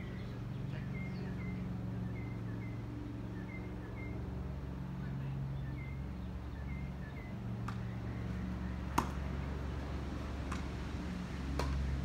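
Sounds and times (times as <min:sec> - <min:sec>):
steady low hum: 0:00.0 - 0:12.0
tennis ball hit and bouncing: 0:07.6 - 0:09.4, 0:10.4 - 0:10.8, 0:11.4 - 0:12.0.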